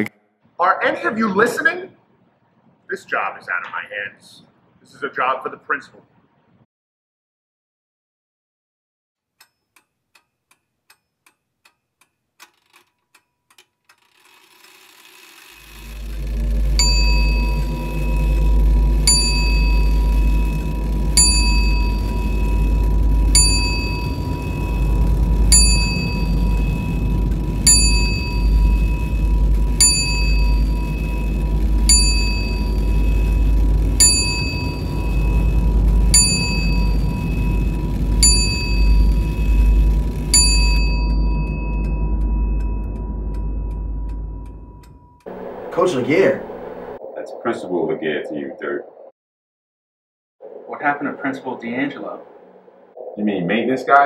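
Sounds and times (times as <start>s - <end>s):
deep bass drone: 15.4s - 49.1s, 50.4s - 53.7s
bell-like chime: 16.3s - 45.3s.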